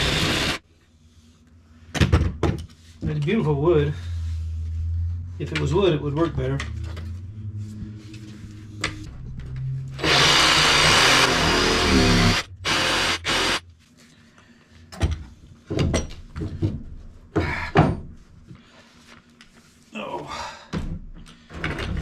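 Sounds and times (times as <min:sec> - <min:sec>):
reciprocating saw cutting wood: 0:00.0 - 0:00.6, 0:09.9 - 0:13.6.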